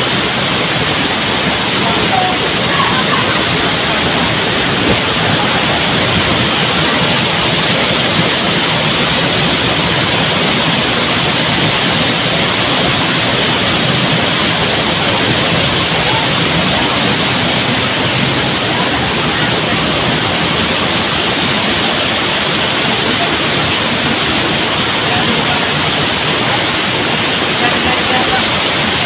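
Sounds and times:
waterfall rushing onto rocks: 0.0 - 29.0.

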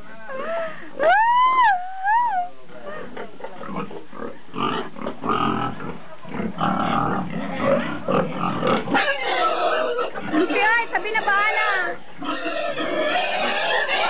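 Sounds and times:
pigs grunting: 2.7 - 14.0.

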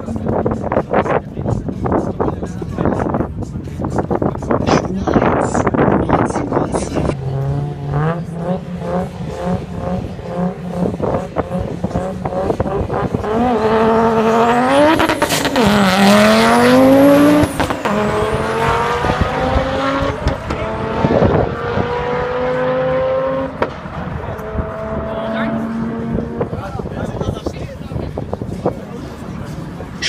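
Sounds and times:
racing car engine revving: 6.8 - 27.4.

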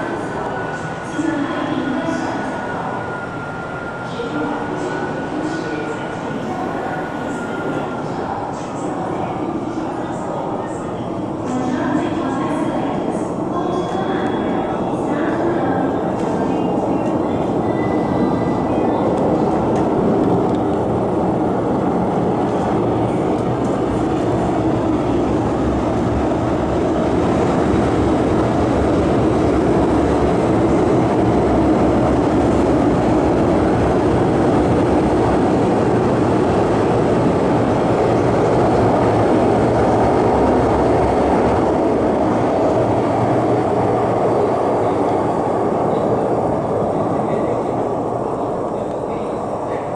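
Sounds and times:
metro train rumbling past: 0.0 - 49.9.

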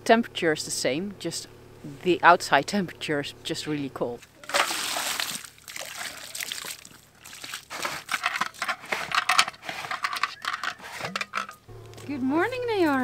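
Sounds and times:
water pouring and splashing: 4.4 - 8.7.

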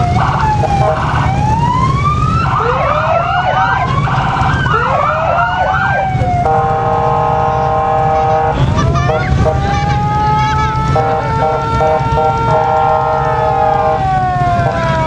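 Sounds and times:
emergency sirens wailing: 0.0 - 15.0
chord-like horn tone: 6.4 - 9.7, 10.9 - 14.0.

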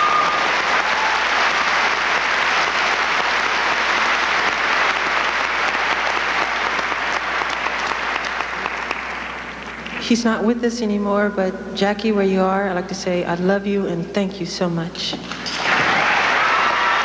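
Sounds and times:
large audience applauding: 0.0 - 9.9, 15.6 - 17.0.

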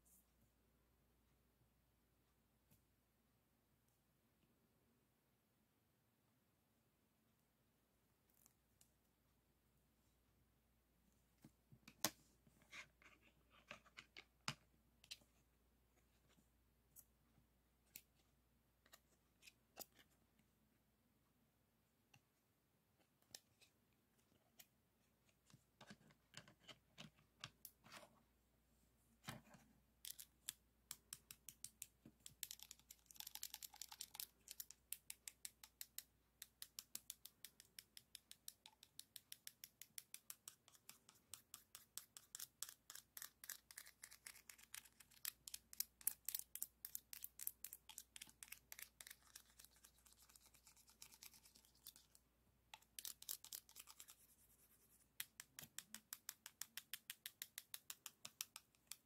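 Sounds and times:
plastic pens clicking together: 30.0 - 41.0.

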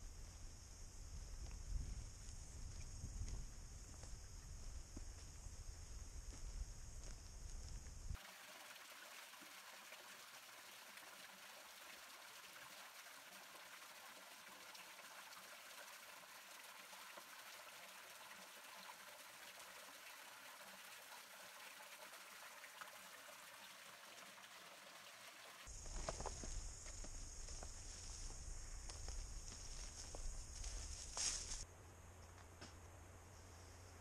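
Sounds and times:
small waterfall trickling: 8.2 - 25.8.

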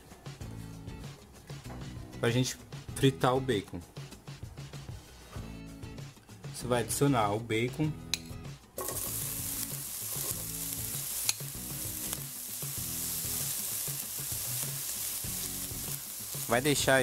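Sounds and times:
bacon sizzling in oil: 8.8 - 17.0.

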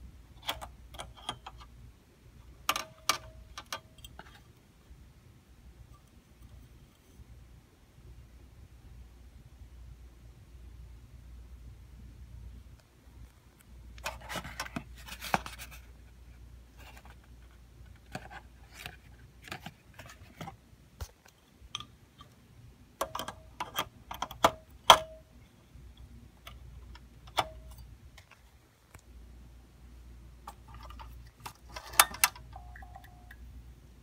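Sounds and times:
steady low hum: 0.0 - 34.0.

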